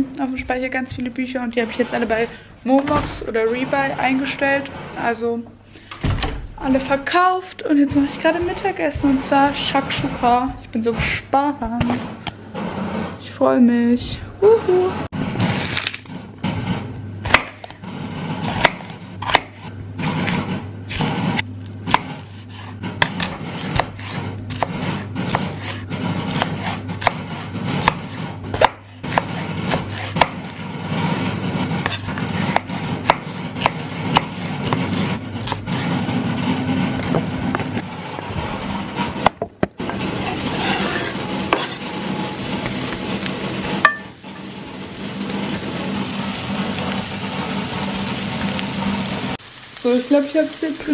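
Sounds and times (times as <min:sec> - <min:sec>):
knife chopping on wooden board: 0:17.2 - 0:17.8, 0:18.5 - 0:21.1, 0:21.8 - 0:30.6, 0:31.8 - 0:35.8
peppers sizzling in a pan: 0:41.6 - 0:50.9.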